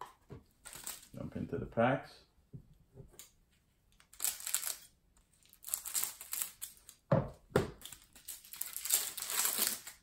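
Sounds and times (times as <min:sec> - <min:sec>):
plastic wrapper crinkling and tearing: 0:00.6 - 0:01.2, 0:04.0 - 0:07.1, 0:07.8 - 0:10.0.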